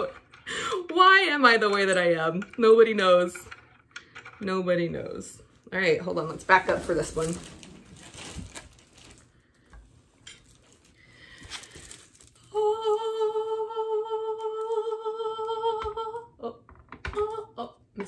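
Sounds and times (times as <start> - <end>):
faint handling noises: 6.2 - 12.5.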